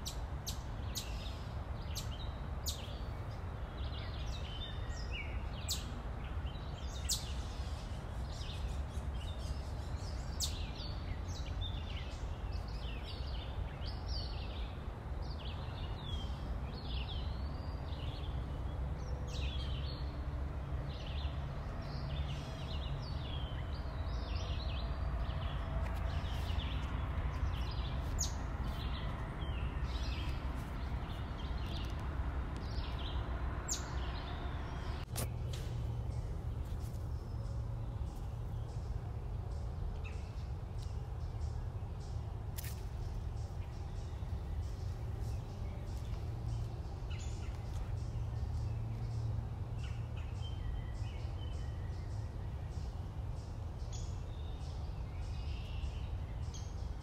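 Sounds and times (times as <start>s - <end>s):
birds chirping: 0.0s - 57.0s
steady low rumble: 22.6s - 55.5s.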